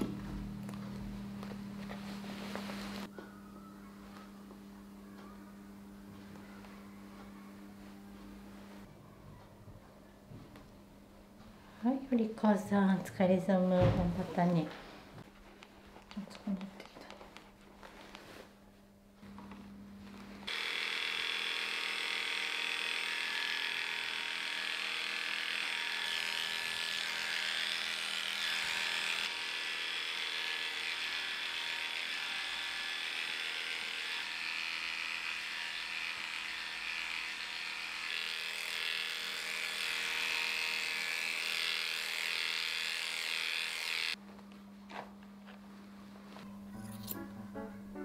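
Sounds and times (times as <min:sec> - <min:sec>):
animal clipper running: 0:20.4 - 0:44.2.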